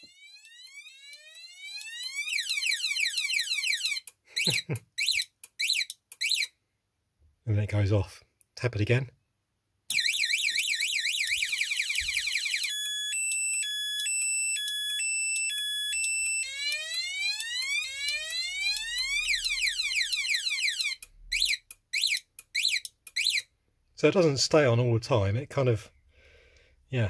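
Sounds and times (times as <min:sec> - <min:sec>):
motorcycle alarm siren: 0:00.0 - 0:06.5, 0:09.9 - 0:23.5.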